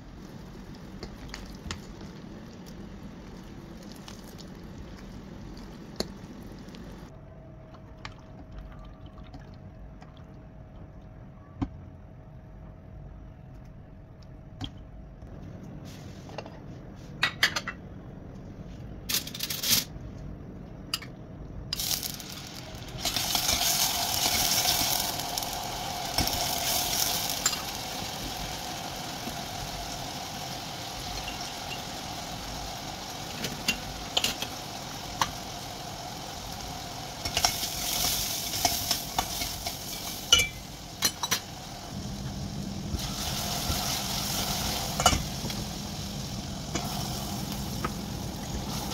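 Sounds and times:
onion sizzling in oil: 0:00.0 - 0:07.1, 0:21.7 - 0:48.9.

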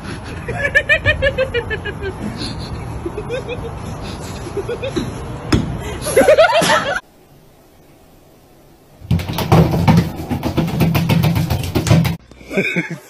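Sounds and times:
sharp knock: 0:09.1 - 0:12.2.

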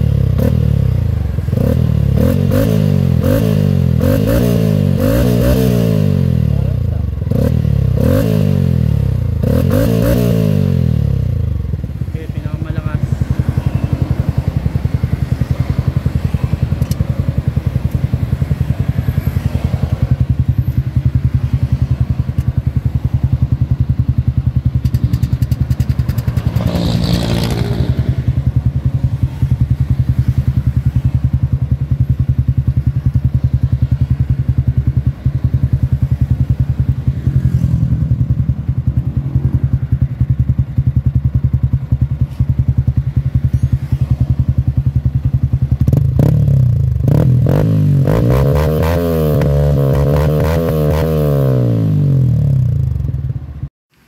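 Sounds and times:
motorcycle engine idling: 0:00.0 - 0:05.1, 0:05.7 - 0:47.6, 0:51.6 - 0:53.7
engine revving: 0:00.0 - 0:11.6, 0:24.9 - 0:28.4, 0:45.9 - 0:52.9.

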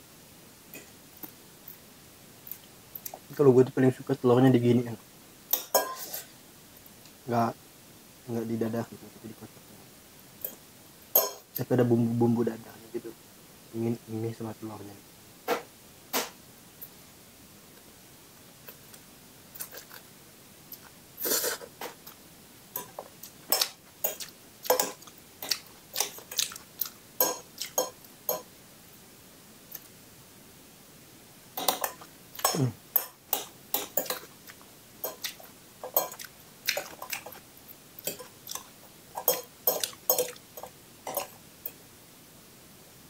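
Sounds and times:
cutlery scraping a bowl: 0:05.5 - 0:06.3, 0:22.8 - 0:26.5, 0:31.6 - 0:34.3, 0:35.0 - 0:37.4, 0:38.0 - 0:41.4.

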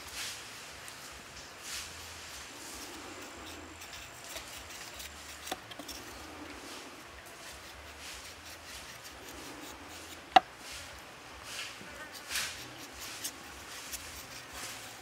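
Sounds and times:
knife slicing carrot: 0:02.8 - 0:06.2.

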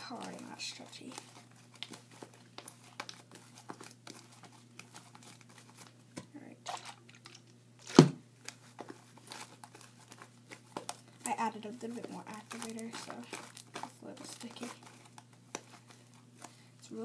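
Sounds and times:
thump: 0:07.9 - 0:08.2.

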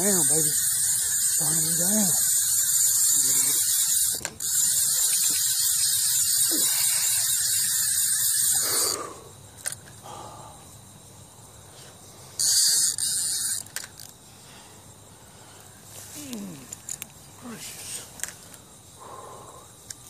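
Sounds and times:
fishing reel drag screaming: 0:00.0 - 0:09.3, 0:12.4 - 0:13.7.

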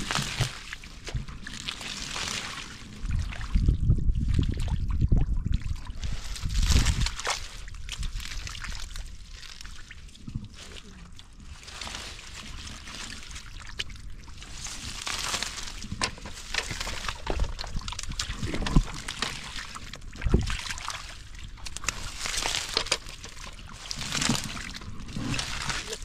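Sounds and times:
hands splashing in muddy water: 0:00.0 - 0:26.0.

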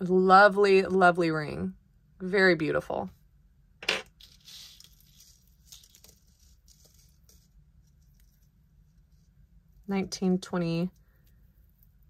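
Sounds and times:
packaging rustling: 0:04.2 - 0:08.4.

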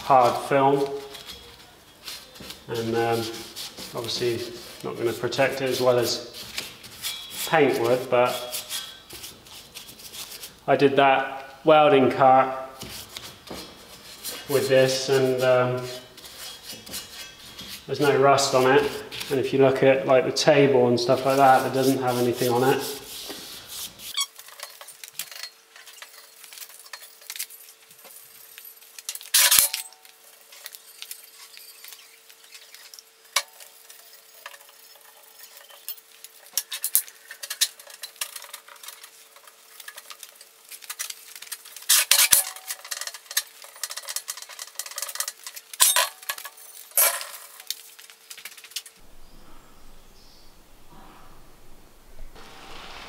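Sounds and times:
rag rubbing on steel: 0:00.0 - 0:10.6, 0:12.8 - 0:19.4, 0:21.0 - 0:29.6, 0:30.4 - 0:46.7
faint steady hum: 0:00.0 - 0:53.0.

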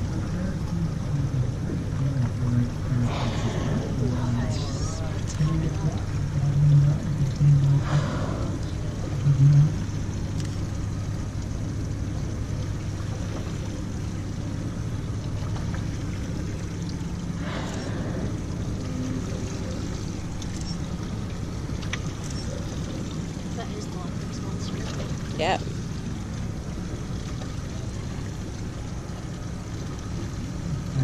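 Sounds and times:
hissy washes of water: 0:00.0 - 0:31.0
outboard motors idling: 0:00.0 - 0:31.0.

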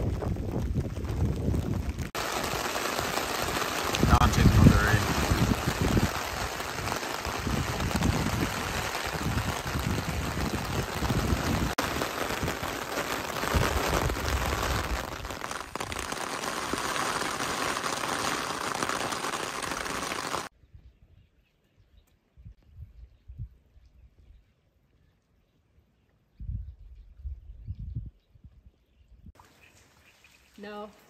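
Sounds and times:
rain hissing: 0:00.0 - 0:20.5.

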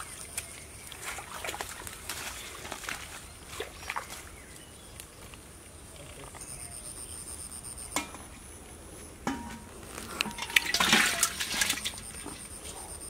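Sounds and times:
water splashing in a pot: 0:00.0 - 0:04.2, 0:09.2 - 0:12.6
knocks against a pot: 0:09.2 - 0:11.8.

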